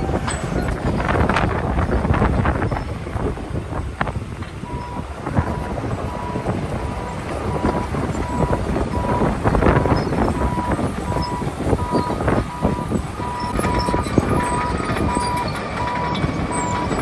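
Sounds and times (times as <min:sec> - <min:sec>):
wind buffeting microphone: 0:00.0 - 0:17.0
backup alarm beeping: 0:04.6 - 0:17.0.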